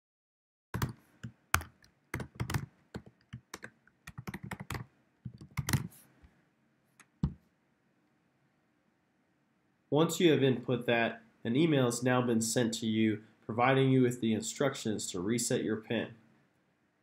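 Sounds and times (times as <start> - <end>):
keyboard typing: 0.8 - 6.0.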